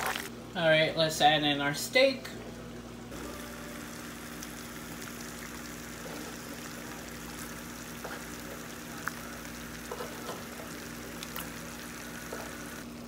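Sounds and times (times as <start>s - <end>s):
sauce sizzling and bubbling: 3.2s - 12.8s.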